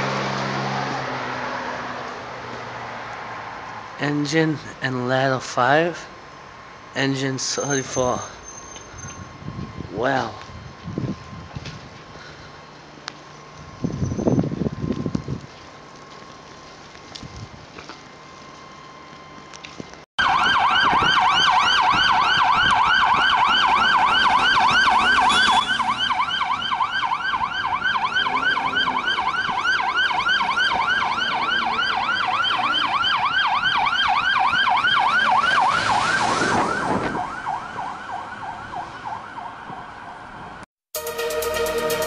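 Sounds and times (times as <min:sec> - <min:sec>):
fire engine siren yelping: 0:20.2 - 0:42.0
rush of noise: 0:23.4 - 0:27.1.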